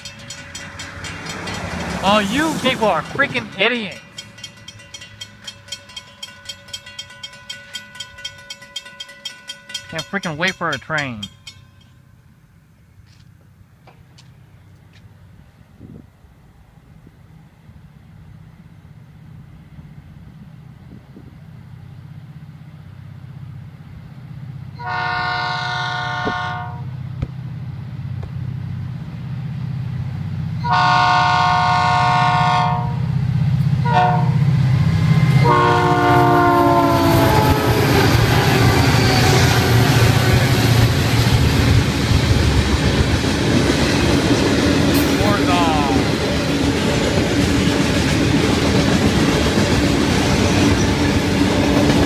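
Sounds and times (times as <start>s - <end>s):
locomotive engine rumble: 0.0s - 8.6s, 26.1s - 52.0s
wheel and rail noise: 0.0s - 24.9s, 26.2s - 52.0s.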